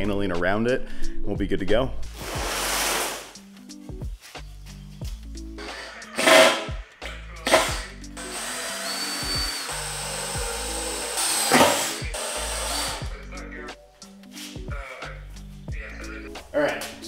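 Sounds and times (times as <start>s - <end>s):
background music: 0.0s - 17.0s
cordless drill whirring: 5.6s - 6.7s, 7.5s - 13.0s.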